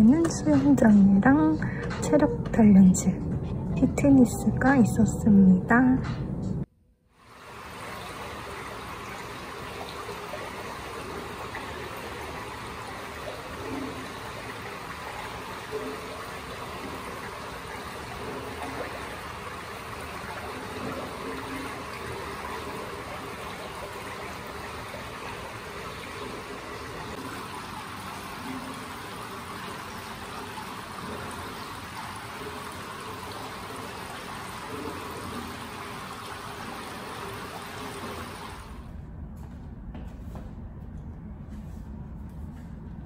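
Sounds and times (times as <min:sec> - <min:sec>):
pool water trickling and rushing: 0:07.2 - 0:38.9.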